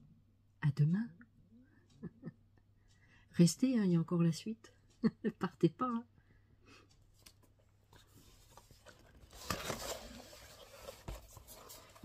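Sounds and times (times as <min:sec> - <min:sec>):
paper and card rustling: 0:07.2 - 0:12.0.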